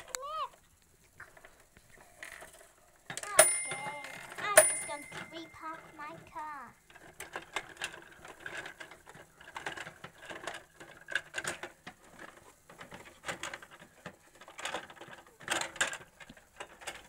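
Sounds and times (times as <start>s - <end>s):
plastic toy parts clicking: 6.9s - 17.0s.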